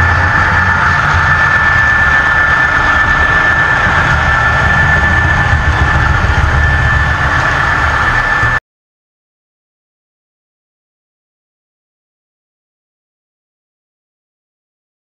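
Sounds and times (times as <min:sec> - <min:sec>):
model train rumbling and whining: 0:00.0 - 0:08.6.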